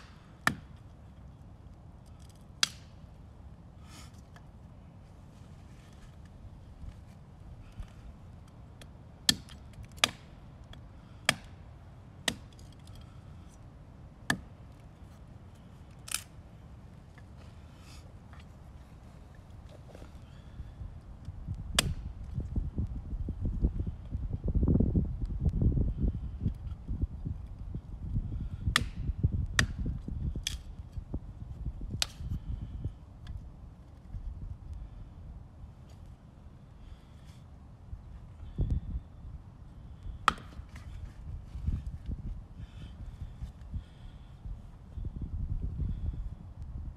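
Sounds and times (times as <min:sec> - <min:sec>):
knife chopping log: 0:00.0 - 0:00.8, 0:09.3 - 0:10.3, 0:11.2 - 0:11.6, 0:12.2 - 0:12.6, 0:14.3 - 0:14.5, 0:21.8 - 0:22.0, 0:28.7 - 0:29.0, 0:40.2 - 0:40.9
knife chopping into stick: 0:28.7 - 0:29.0, 0:40.2 - 0:40.9.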